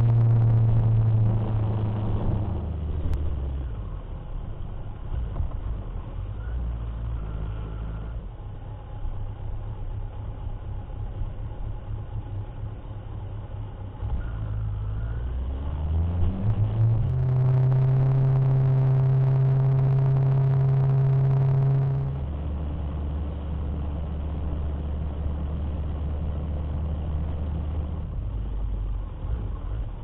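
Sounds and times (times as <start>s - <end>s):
motorcycle engine running: 17.2s - 30.0s.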